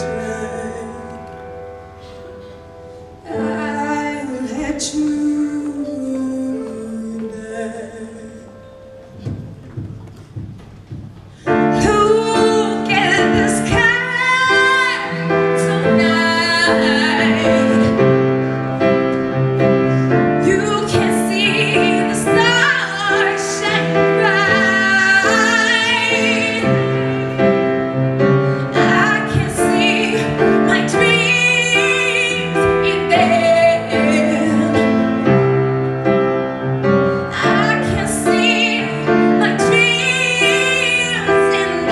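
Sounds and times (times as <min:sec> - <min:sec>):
keyboard accompaniment: 0:00.0 - 0:41.9
woman singing into microphone: 0:03.2 - 0:08.7, 0:11.5 - 0:18.5, 0:20.4 - 0:27.6, 0:28.6 - 0:35.7, 0:37.1 - 0:41.9.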